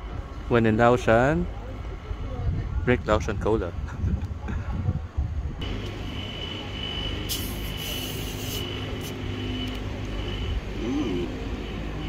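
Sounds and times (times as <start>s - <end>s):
gas hissing from bottle: 7.2s - 9.2s.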